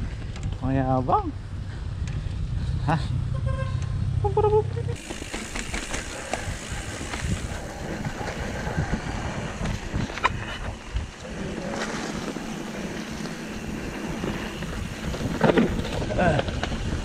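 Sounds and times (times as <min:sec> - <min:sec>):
wind buffeting microphone: 0:00.0 - 0:17.0
bike knocks on trail: 0:05.0 - 0:07.6.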